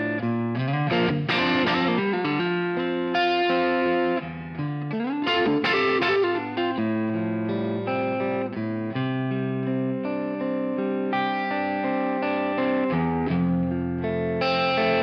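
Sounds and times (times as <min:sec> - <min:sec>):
guitar background music: 0:00.0 - 0:15.0
guitar notes sliding upward: 0:00.0 - 0:15.0.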